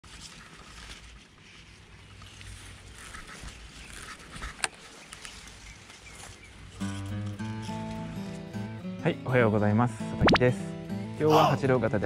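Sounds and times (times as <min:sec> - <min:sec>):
reeds rustling: 0:00.0 - 0:08.5.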